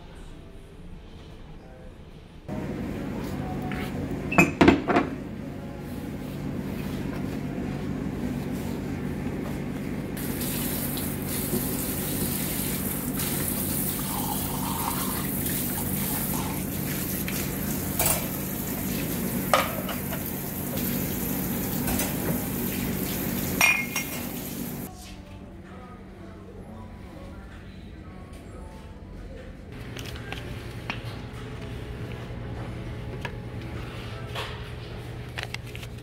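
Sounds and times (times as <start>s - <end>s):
mugs clinking together: 23.6s - 24.3s.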